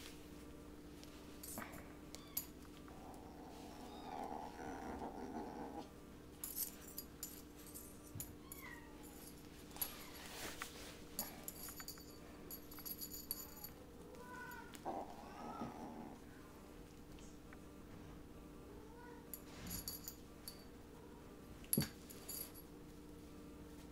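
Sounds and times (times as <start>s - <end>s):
toy and paws rattling on tiles: 6.4s - 15.0s
kittens mewing: 14.2s - 16.2s.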